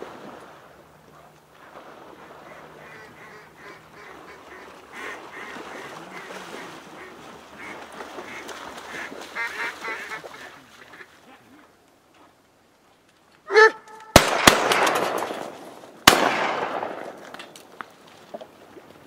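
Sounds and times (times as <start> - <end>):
waterfowl quacking and honking: 2.5 - 11.3.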